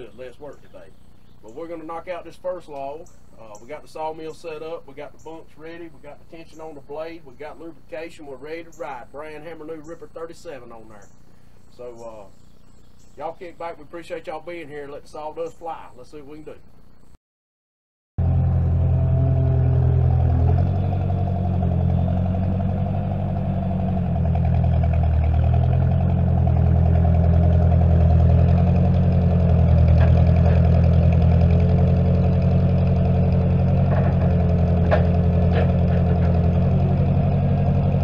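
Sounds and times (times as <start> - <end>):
tractor engine running: 18.2 - 38.0.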